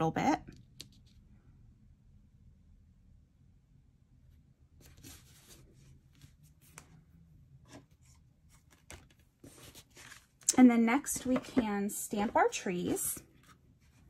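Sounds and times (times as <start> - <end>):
cardstock rustling and scraping: 4.8 - 7.0, 7.7 - 10.5.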